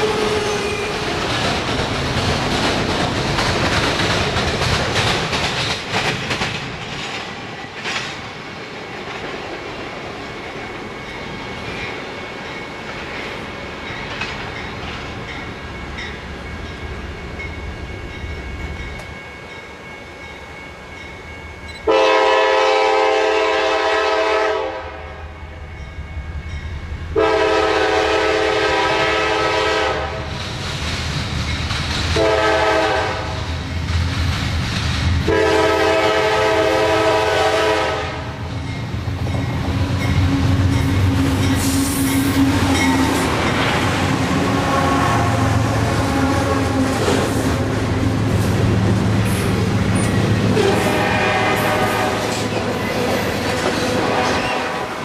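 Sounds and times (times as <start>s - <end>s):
locomotive horn: 0.0s - 1.0s, 21.9s - 25.2s, 27.2s - 30.3s, 32.2s - 33.4s, 35.2s - 38.4s, 44.4s - 47.6s, 50.4s - 55.0s
train rumble and wheel clatter: 0.0s - 55.0s.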